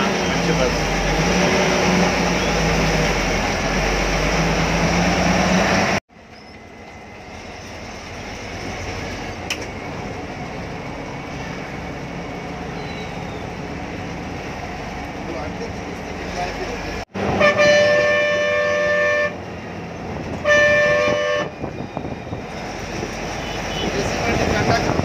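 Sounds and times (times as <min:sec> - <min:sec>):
bus engine humming: 0:00.0 - 0:25.0
road noise: 0:00.0 - 0:25.0.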